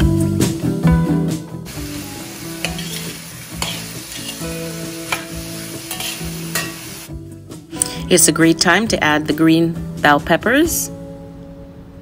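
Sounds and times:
vegetables sizzling in a wok: 0:01.6 - 0:07.2
spatula scraping and tapping pan: 0:02.6 - 0:06.9.

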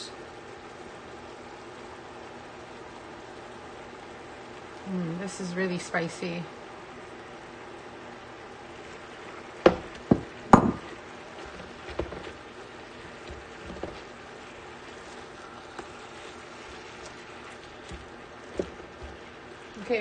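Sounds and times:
sharp knocks on pan: 0:09.7 - 0:10.9
spatula stirring in steel pan: 0:11.4 - 0:20.0.

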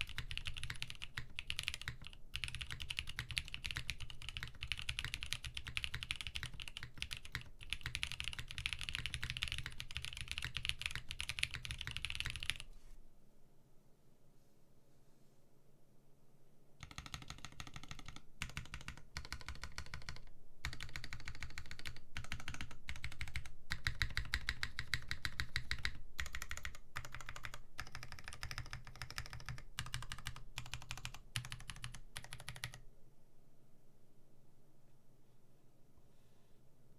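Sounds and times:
mechanical keyboard clacking: 0:00.0 - 0:12.6, 0:16.8 - 0:32.8.

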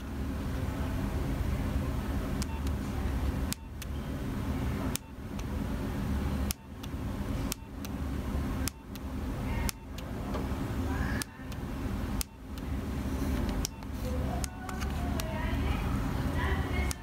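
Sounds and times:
low background rumble: 0:00.0 - 0:17.0
phone key clicks: 0:06.4 - 0:08.0, 0:08.6 - 0:10.1, 0:13.4 - 0:15.4.

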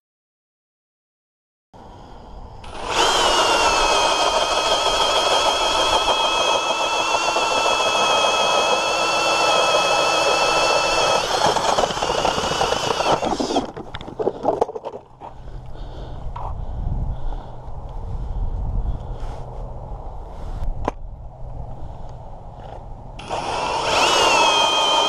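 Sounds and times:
drill motor and gear whine: 0:02.6 - 0:13.7, 0:23.2 - 0:25.0.

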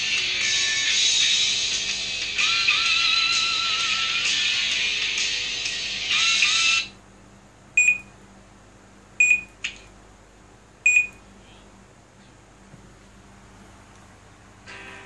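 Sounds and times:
short high beeps: 0:07.8 - 0:08.1, 0:09.2 - 0:09.5, 0:10.9 - 0:11.2.

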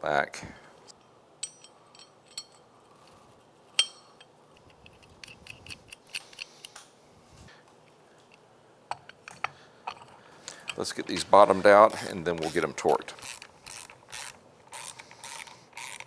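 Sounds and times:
light metallic clinks and taps: 0:01.0 - 0:02.7, 0:03.8 - 0:06.5.

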